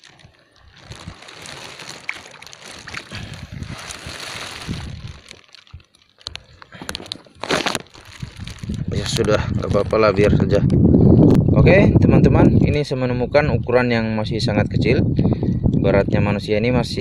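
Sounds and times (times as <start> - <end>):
shallow water sloshing and splashing: 0.0 - 8.9.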